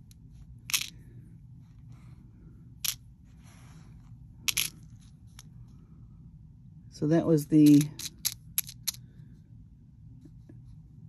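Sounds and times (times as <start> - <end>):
metal bead caps clicking on plastic tray: 7.6 - 9.0.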